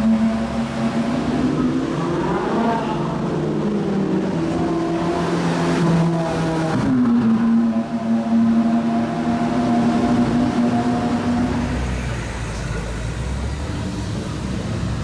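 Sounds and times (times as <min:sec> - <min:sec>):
car engine revving in tunnel: 0:00.0 - 0:15.0.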